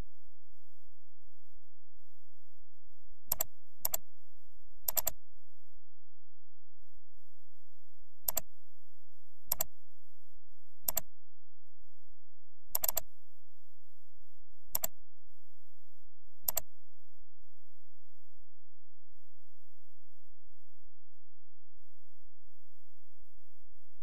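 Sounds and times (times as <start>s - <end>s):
computer mouse clicks: 3.3s - 4.0s, 4.9s - 5.2s, 8.3s - 8.5s, 9.5s - 9.7s, 10.9s - 11.1s, 12.7s - 13.1s, 14.7s - 15.0s, 16.5s - 16.7s.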